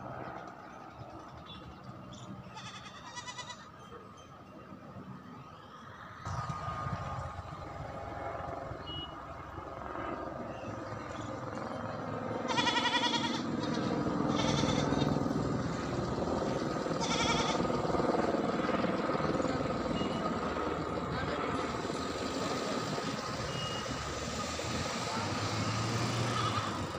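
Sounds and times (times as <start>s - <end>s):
goat bleating: 2.5s - 3.7s, 12.5s - 15.1s, 17.0s - 17.6s, 26.3s - 26.8s
steady low rumble: 6.3s - 12.2s.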